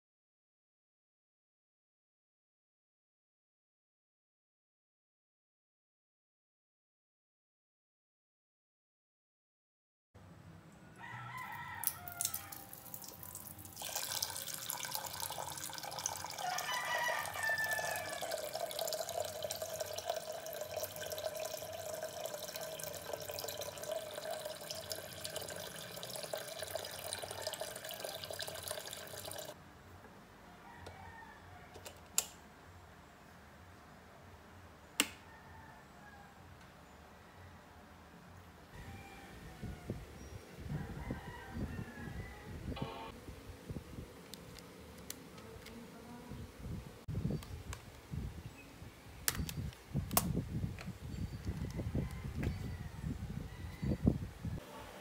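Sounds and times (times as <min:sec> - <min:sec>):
tap water running into a metal pot: 0:11.8 - 0:29.6
ringing tone of filling pot: 0:18.0 - 0:29.5.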